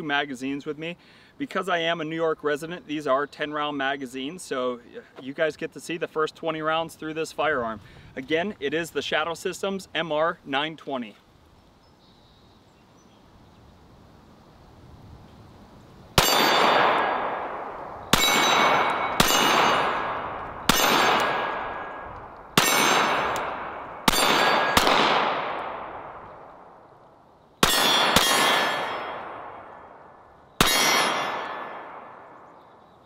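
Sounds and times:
pistol shots ringing: 0:16.2 - 0:26.5, 0:27.6 - 0:32.6.

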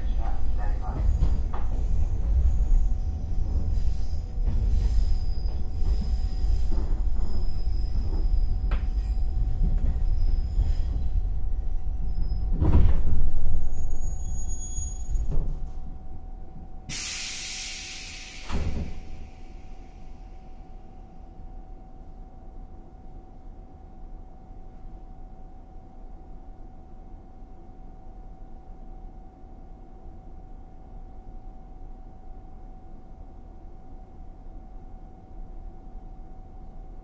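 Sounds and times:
train bogie rumble: 0:00.0 - 0:21.0
brake squeal: 0:04.7 - 0:09.3, 0:13.7 - 0:15.3
pneumatic door air hiss: 0:16.9 - 0:20.1.

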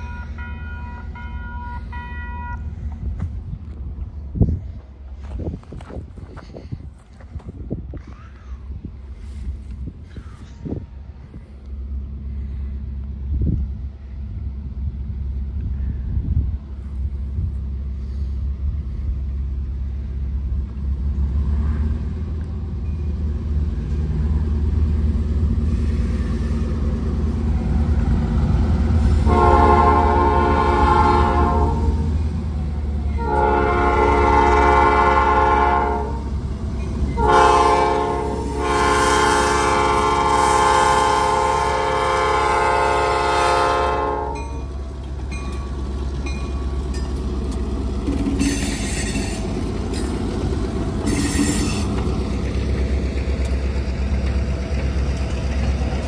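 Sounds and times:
locomotive horn blasts: 0:00.0 - 0:02.7, 0:29.2 - 0:32.1, 0:33.1 - 0:36.3, 0:37.1 - 0:44.7
low rumble of locomotive: 0:00.0 - 0:56.0.

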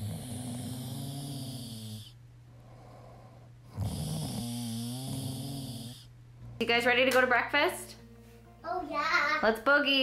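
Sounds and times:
man snoring: 0:00.0 - 0:06.1.

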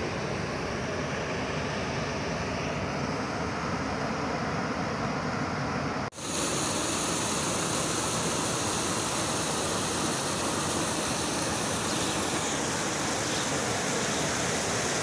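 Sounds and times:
water pouring over a weir: 0:06.2 - 0:15.0.

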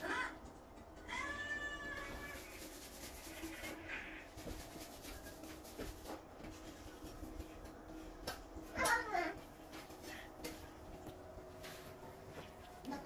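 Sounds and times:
cat meowing: 0:01.0 - 0:02.4.

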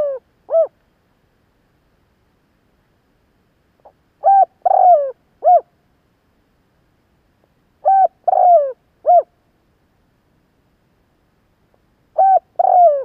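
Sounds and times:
dove cooing: 0:00.0 - 0:00.8, 0:03.8 - 0:05.7, 0:07.8 - 0:09.3, 0:12.2 - 0:13.0.

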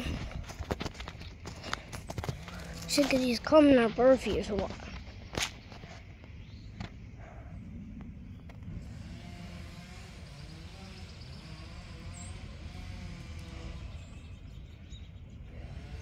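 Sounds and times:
engine revving: 0:08.5 - 0:14.6, 0:15.4 - 0:16.0.

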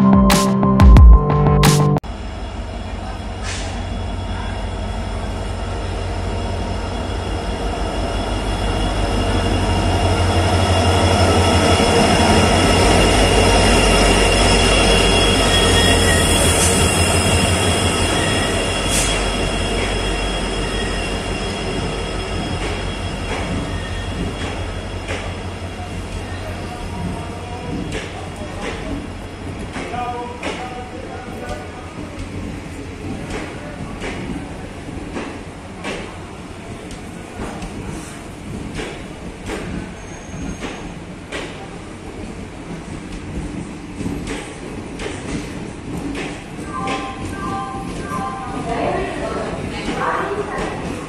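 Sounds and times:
diesel locomotive engine rumble: 0:02.0 - 0:29.8
train wheel and brake squeal: 0:08.2 - 0:26.7, 0:39.7 - 0:41.0.

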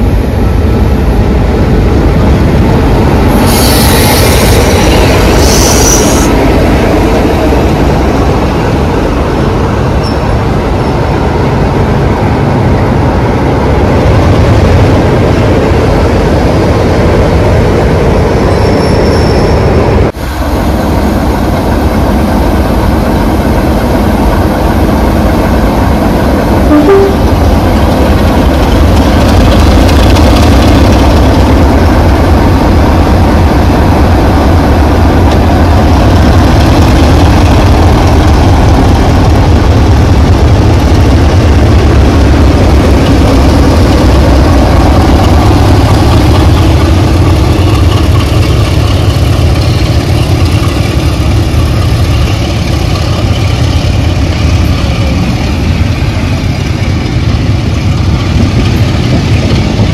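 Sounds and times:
diesel locomotive engine drone: 0:00.0 - 0:59.9.

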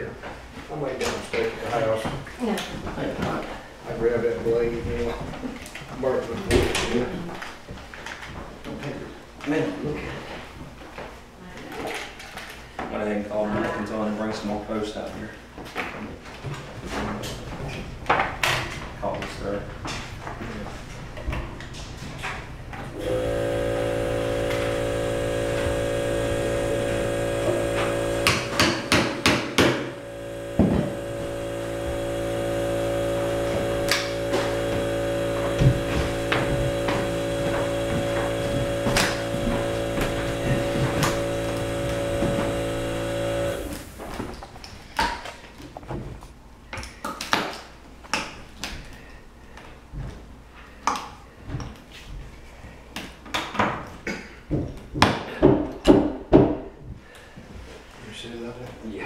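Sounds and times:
power saw cutting wood: 0:23.0 - 0:44.0
knocks and thumps of wood: 0:27.5 - 0:29.9, 0:30.5 - 0:31.5, 0:33.6 - 0:42.8.

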